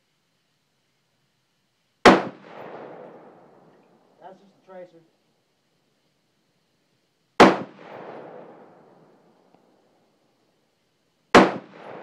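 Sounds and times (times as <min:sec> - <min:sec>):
rolling gunshot echo: 0:02.0 - 0:03.5, 0:07.4 - 0:08.9, 0:11.3 - 0:12.0
rifle shot: 0:02.0 - 0:03.6, 0:07.4 - 0:09.1, 0:11.3 - 0:12.0.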